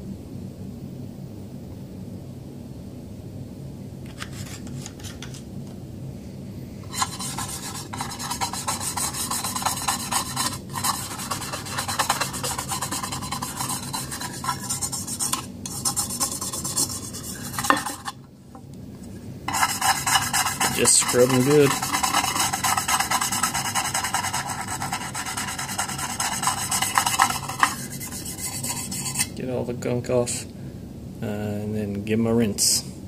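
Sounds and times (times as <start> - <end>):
brush scrubbing metal magazine: 6.8 - 18.2, 19.5 - 29.3.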